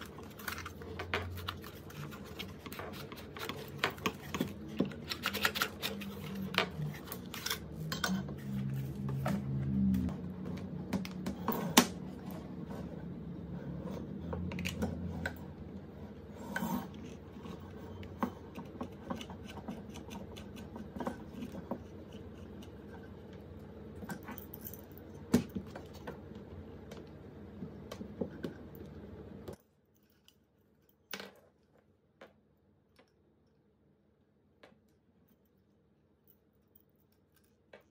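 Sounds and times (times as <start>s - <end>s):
steady low hum: 0.0s - 29.6s.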